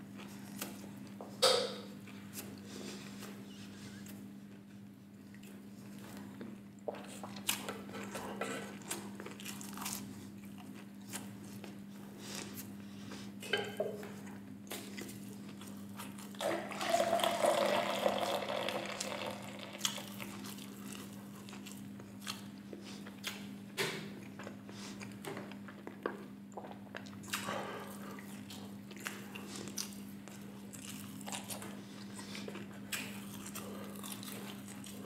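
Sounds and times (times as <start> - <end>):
beer fizzing into a glass: 16.4 - 19.8.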